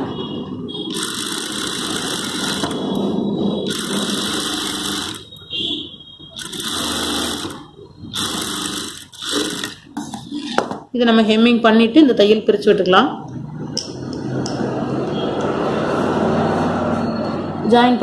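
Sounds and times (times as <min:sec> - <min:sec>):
sewing machine stitching: 0:00.9 - 0:02.8, 0:03.7 - 0:05.3, 0:06.4 - 0:09.8.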